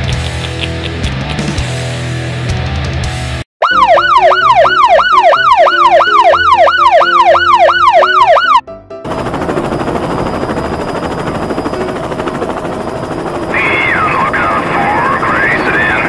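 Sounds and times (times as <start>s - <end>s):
electronic siren sweeps: 3.6s - 8.6s
helicopter rotor whirring: 9.0s - 16.0s.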